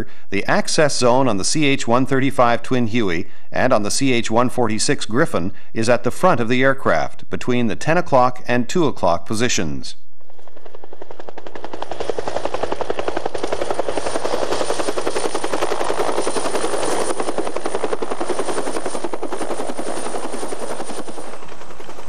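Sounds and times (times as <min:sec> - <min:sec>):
helicopter engine noise: 0:10.1 - 0:22.0
helicopter rotor beating: 0:10.1 - 0:22.0.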